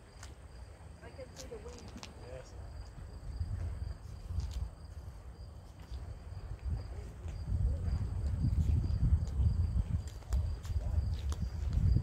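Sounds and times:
wind buffeting microphone: 0:02.6 - 0:12.0.

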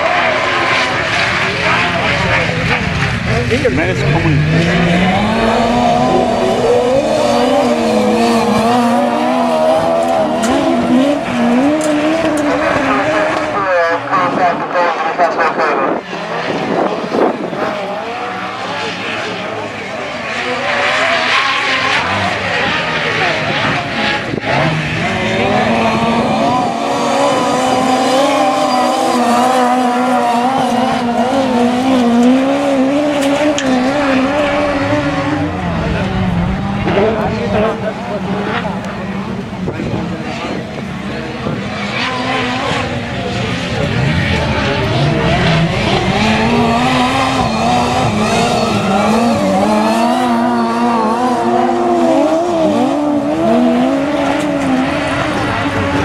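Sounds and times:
race car engines passing: 0:00.0 - 0:56.0.

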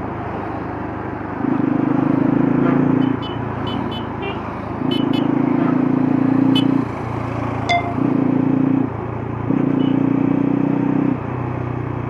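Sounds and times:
motorcycle engine and exhaust: 0:00.0 - 0:12.0.

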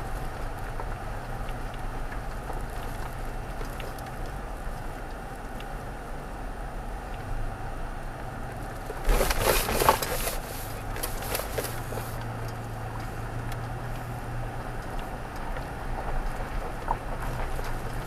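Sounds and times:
low engine hum: 0:00.0 - 0:18.0
tyres crunching on rough ground: 0:08.5 - 0:18.0.

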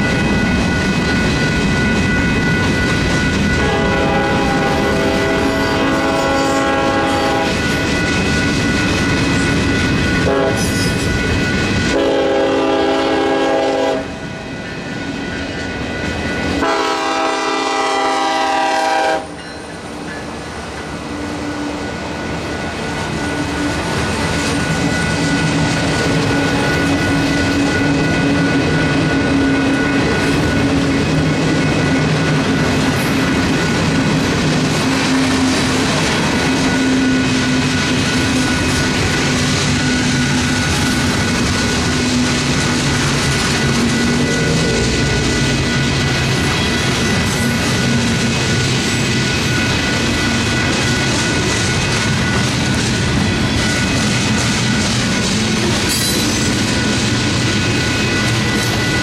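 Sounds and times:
train wheels clacking on rails: 0:00.0 - 0:59.0
locomotive horn blasts: 0:03.6 - 0:07.7, 0:10.2 - 0:10.7, 0:11.9 - 0:14.1, 0:16.6 - 0:19.4.

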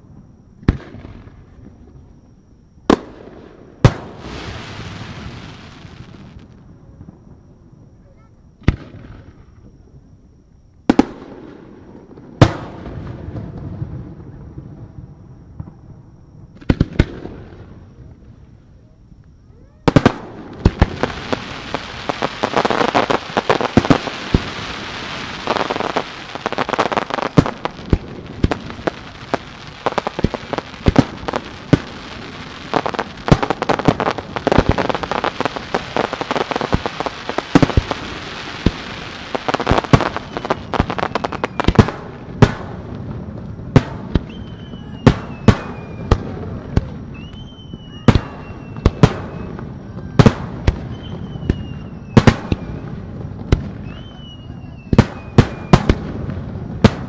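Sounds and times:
fireworks bangs: 0:00.0 - 0:09.9, 0:10.8 - 0:18.4, 0:19.5 - 0:57.0
fireworks crackling: 0:00.0 - 0:10.0, 0:10.8 - 0:57.0
rising whistles: 0:17.4 - 0:41.9, 0:44.0 - 0:56.9.

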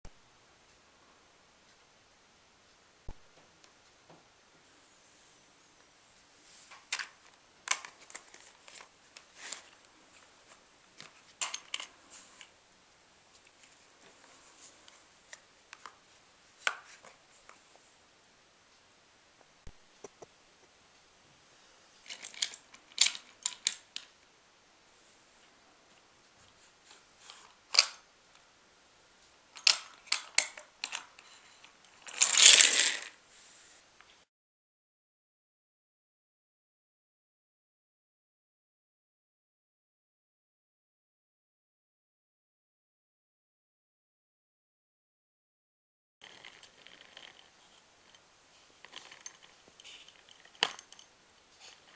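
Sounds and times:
plastic toy track clacking: 0:06.8 - 0:10.3, 0:11.0 - 0:12.5, 0:22.0 - 0:24.1, 0:26.9 - 0:28.0, 0:29.6 - 0:33.2, 0:46.2 - 0:51.1
plastic toy clicks and snaps: 0:27.7 - 0:28.0, 0:29.6 - 0:31.1.

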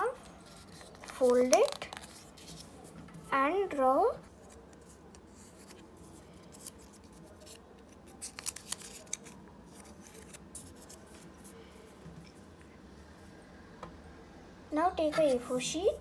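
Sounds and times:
paper rustling and crackling: 0:00.2 - 0:03.0, 0:04.3 - 0:11.6.

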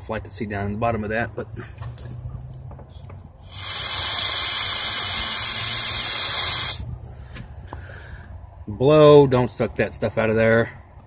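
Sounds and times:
breath blown through tube hissing: 0:03.4 - 0:06.8.

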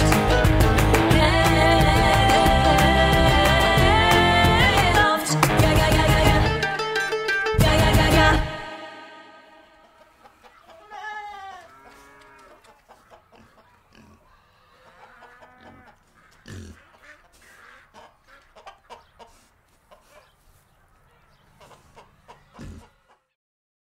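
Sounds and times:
chickens clucking: 0:09.4 - 0:23.4.

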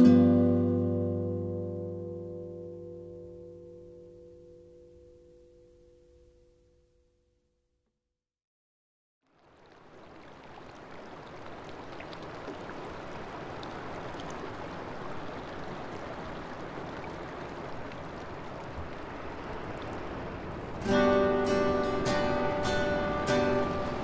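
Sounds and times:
acoustic guitar music: 0:00.0 - 0:06.8, 0:20.7 - 0:24.0
flowing water rushing: 0:09.3 - 0:24.0.

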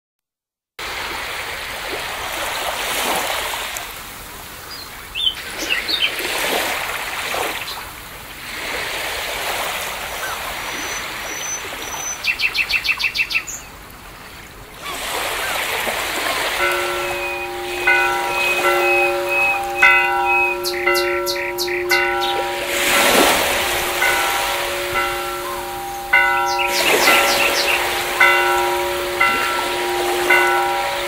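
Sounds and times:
sea waves washing in: 0:00.8 - 0:12.0, 0:13.7 - 0:31.0
birds chirping: 0:10.2 - 0:13.8, 0:14.8 - 0:31.0.

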